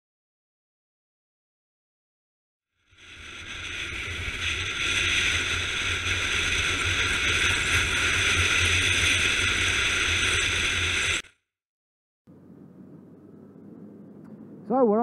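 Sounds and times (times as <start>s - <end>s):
wind and road noise: 3.0s - 11.2s, 12.3s - 15.0s
motorcycle engine hum: 12.3s - 15.0s.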